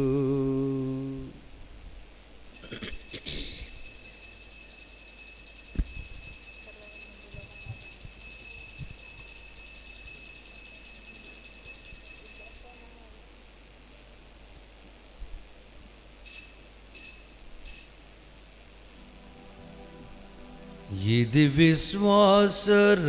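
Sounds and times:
altar bell ringing: 2.5 - 13.2, 16.2 - 22.1.

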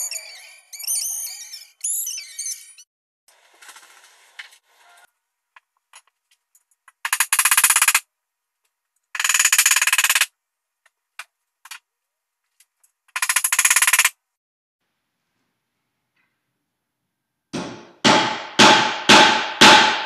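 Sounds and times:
impact driver hammering: 17.6 - 20.0.

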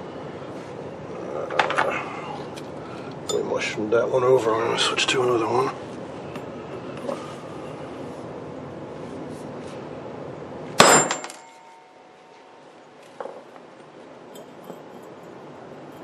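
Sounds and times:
hammer clanging on metal: 10.8 - 11.8.

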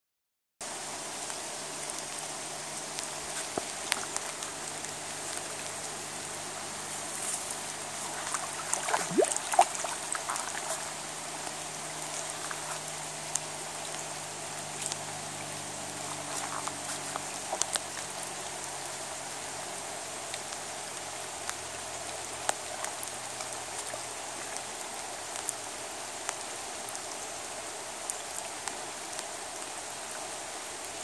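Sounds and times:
rain falling on a river: 0.6 - 31.0
water splashing: 1.8 - 19.0.

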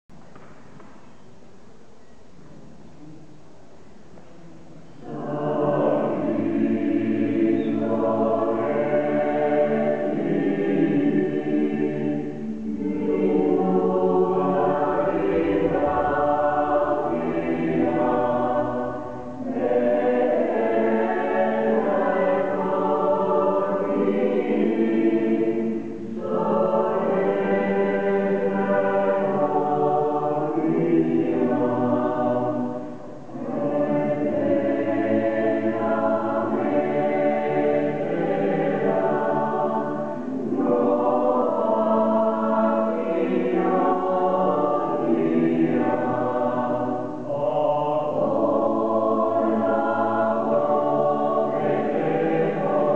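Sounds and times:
mixed choir singing unaccompanied: 4.8 - 52.9.

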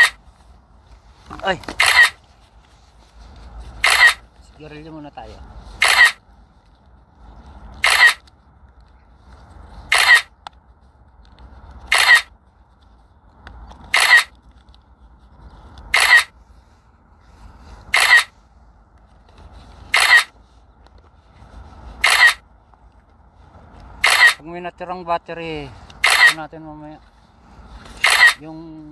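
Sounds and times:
camera shutter sound: 1.7 - 2.2, 3.8 - 4.2, 5.8 - 6.2, 7.8 - 8.2, 9.9 - 10.3, 11.9 - 12.3, 13.9 - 14.4, 15.9 - 16.3, 17.9 - 18.3, 19.9 - 20.3, 22.0 - 22.4, 24.0 - 24.4, 26.0 - 26.4, 28.0 - 28.4.

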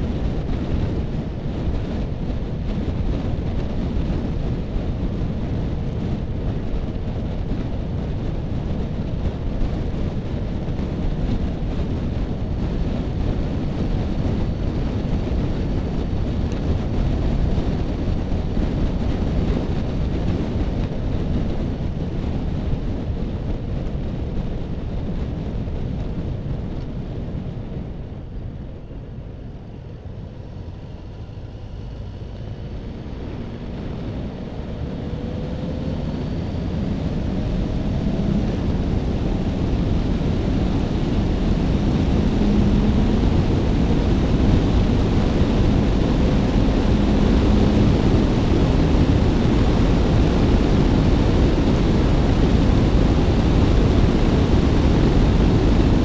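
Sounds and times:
wind rushing over microphone: 0.0 - 56.0
motorcycle engine: 30.2 - 54.2.

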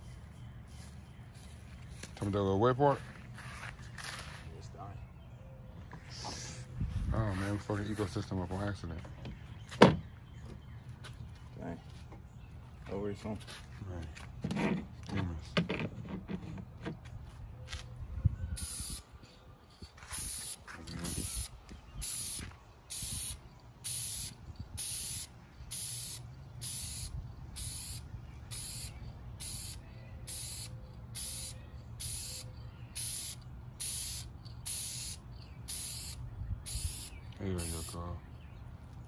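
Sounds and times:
spray can hissing in bursts: 18.6 - 19.1, 20.0 - 38.0.

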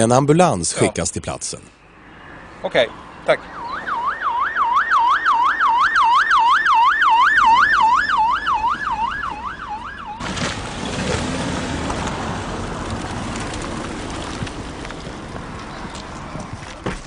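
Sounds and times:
ambulance siren wailing: 2.2 - 10.3.

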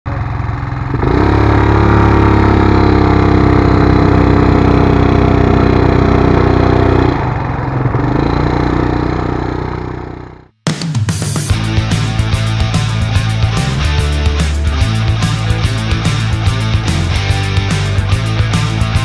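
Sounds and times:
quad bike engine running: 0.1 - 10.5, 11.5 - 19.0.

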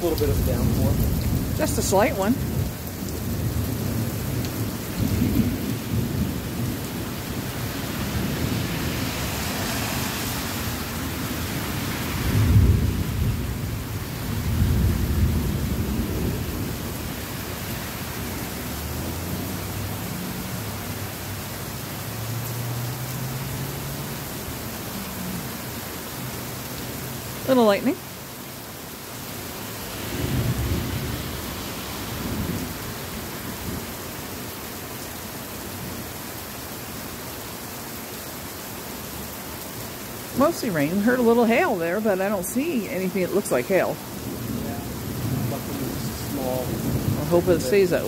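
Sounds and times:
thunder rumbling: 0.0 - 20.8, 29.9 - 33.9, 40.5 - 48.0
heavy rain pouring: 0.0 - 48.0.

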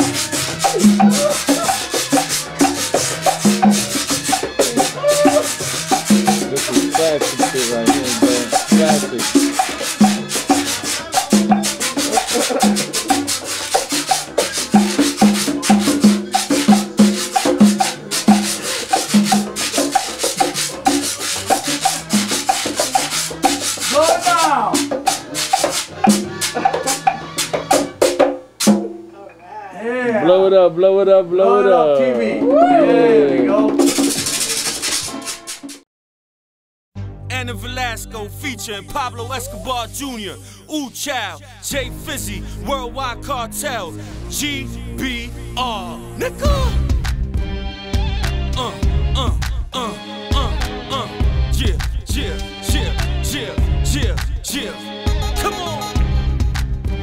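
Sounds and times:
maracas shaking: 0.0 - 26.6, 33.8 - 35.8
scraped percussion: 0.0 - 27.9, 33.8 - 35.8
conga drums: 0.0 - 29.1, 32.3 - 35.8, 39.1 - 41.8, 46.2 - 57.0.

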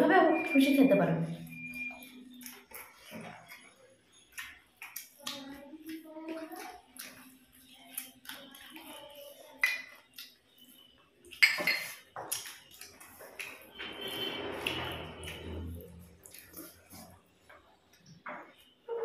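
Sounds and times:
plates and bowl clinking: 11.3 - 12.5.

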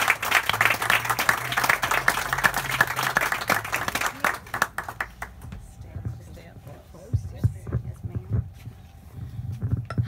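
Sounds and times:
audience applauding: 0.0 - 5.5.

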